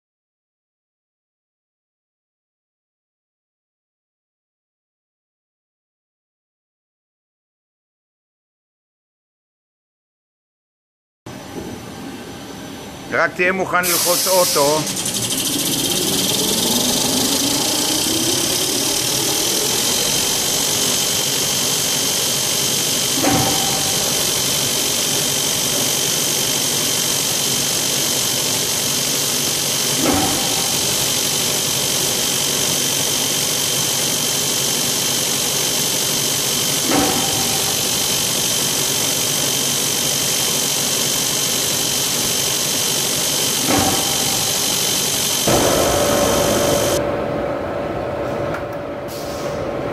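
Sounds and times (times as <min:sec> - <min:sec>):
machine whine: 0:11.3 - 0:49.9.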